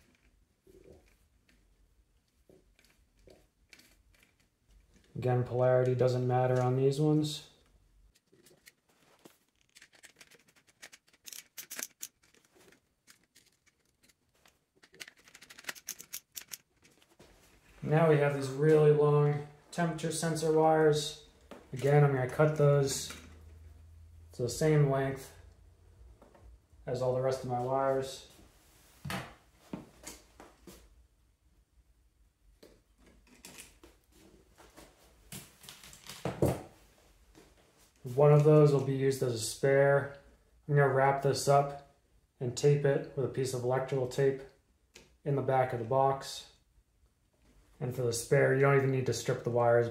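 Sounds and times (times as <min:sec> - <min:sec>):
tool and wire handling rustles: 0:00.0 - 0:05.2, 0:07.6 - 0:18.8.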